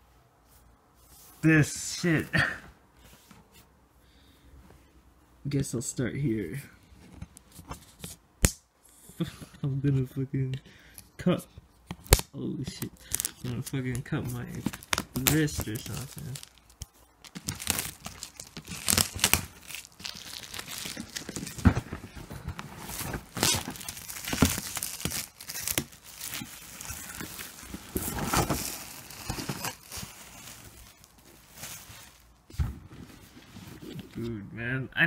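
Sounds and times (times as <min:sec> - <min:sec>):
shrink-wrap crinkling and tearing: 0:12.0 - 0:32.4.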